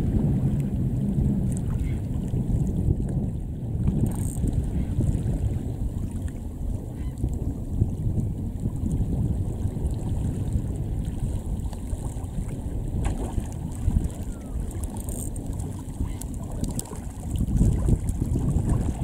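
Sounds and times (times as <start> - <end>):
wind buffeting microphone: 0.0 - 19.0
waves lapping on stony shore: 9.0 - 19.0.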